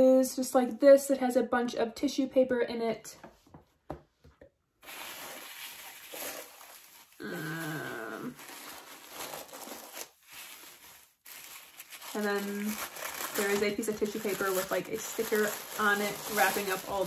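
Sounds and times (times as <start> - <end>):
tissue paper rustling: 4.8 - 17.0.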